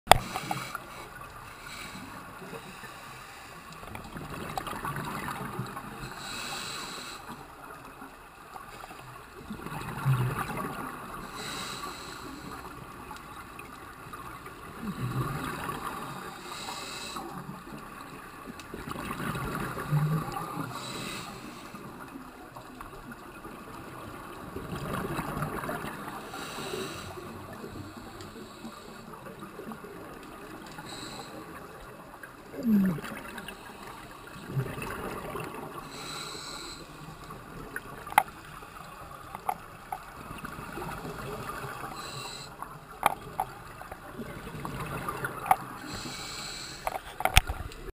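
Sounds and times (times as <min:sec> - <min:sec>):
regulator inhalation hiss: 0:06.1 - 0:07.4, 0:45.8 - 0:46.9
exhaled bubbles gushing: 0:32.4 - 0:36.0.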